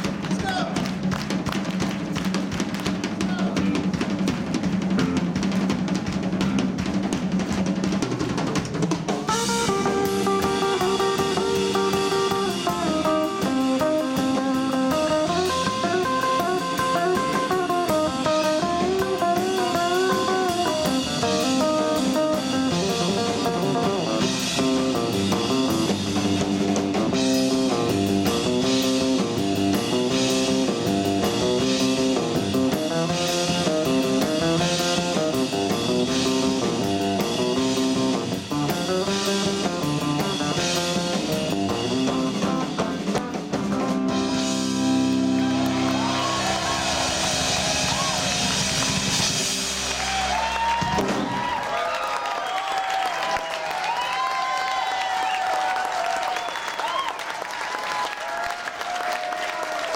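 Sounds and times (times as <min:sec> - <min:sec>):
bass guitar: 0:00.0 - 0:51.9
rock drum kit: 0:00.0 - 0:59.9
electric guitars playing melody: 0:09.2 - 0:51.4.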